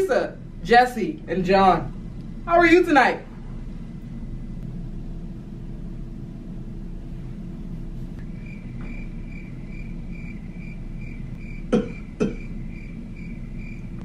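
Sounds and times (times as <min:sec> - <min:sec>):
low steady rumble: 0:00.0 - 0:14.0
crickets chirping: 0:08.2 - 0:14.0.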